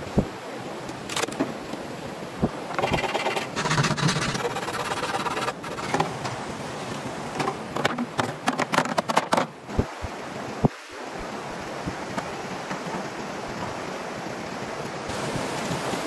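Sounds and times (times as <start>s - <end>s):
flowing creek water: 0.0s - 16.0s
saw rasping through bamboo: 2.8s - 6.0s
bamboo poles knocking on rock: 7.4s - 9.5s.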